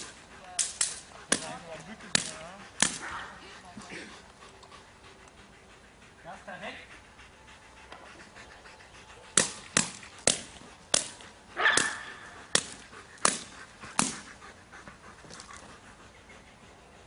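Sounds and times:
dog barking: 0:11.6 - 0:12.4.

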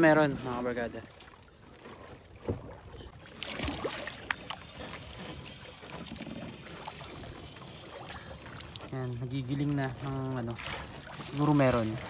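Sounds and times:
water lapping against boat hull: 0:00.0 - 0:12.0.

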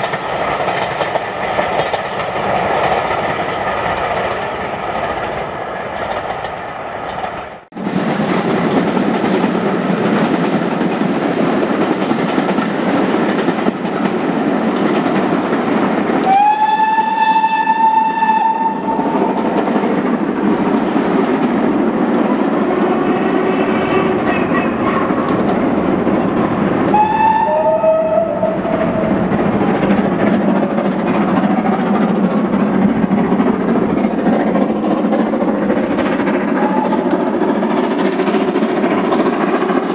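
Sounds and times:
rail noise: 0:00.0 - 0:39.9
steam whistle: 0:16.2 - 0:19.3, 0:26.9 - 0:29.1.

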